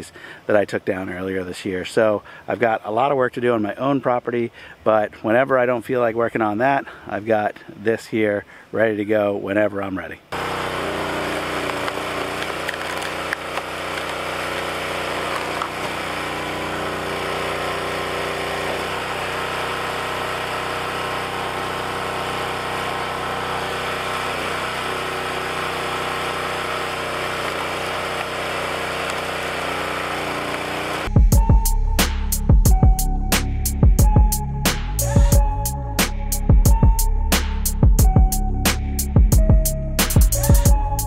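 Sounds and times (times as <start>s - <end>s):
log splitter engine running: 10.3s - 31.5s
wood cracking: 11.4s - 16.3s, 26.6s - 31.0s.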